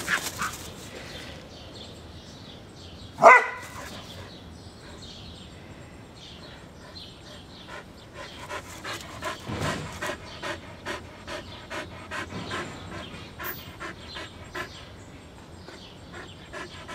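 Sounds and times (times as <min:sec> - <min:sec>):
dog panting: 0:06.5 - 0:16.9.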